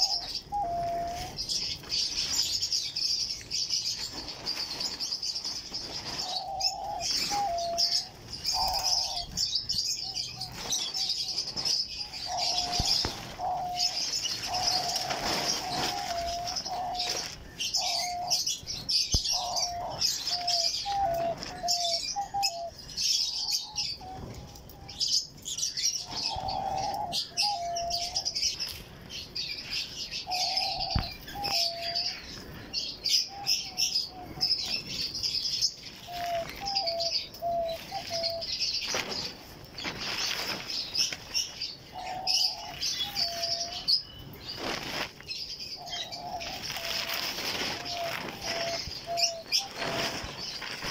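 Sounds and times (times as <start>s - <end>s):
doves cooing: 0.0s - 3.0s, 3.8s - 50.9s
birds chirping: 0.0s - 50.9s
wings fluttering: 10.4s - 18.3s, 35.8s - 50.9s.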